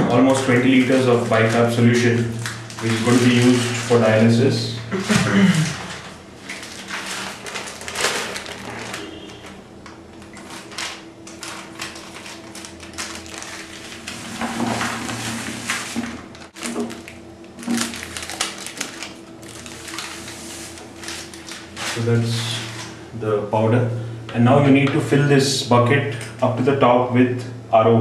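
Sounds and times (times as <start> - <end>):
faint steady hum: 0.0 - 28.0
plastic packets crinkling: 0.3 - 4.3, 5.1 - 9.6, 10.2 - 23.0.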